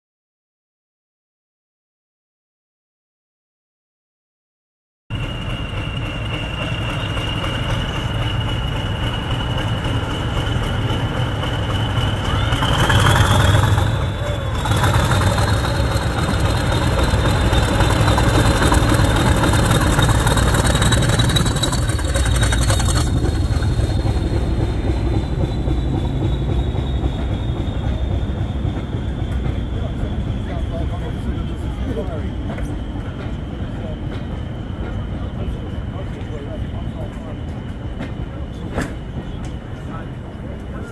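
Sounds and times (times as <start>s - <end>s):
high turbocharger whistle: 5.1s - 9.7s, 11.4s - 30.6s
diesel locomotive engine running: 5.1s - 40.9s.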